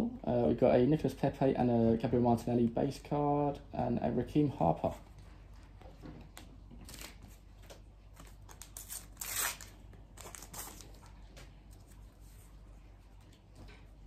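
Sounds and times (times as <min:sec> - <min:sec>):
foil wrapper rustling and tearing: 0:06.8 - 0:07.3, 0:08.2 - 0:11.1.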